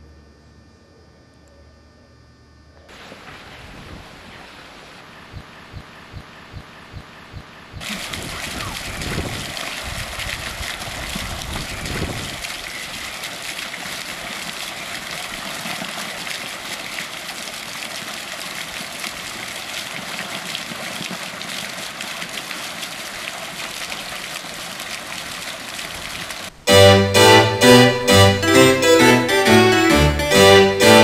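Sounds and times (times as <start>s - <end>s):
running water rushing: 2.9s - 31.0s.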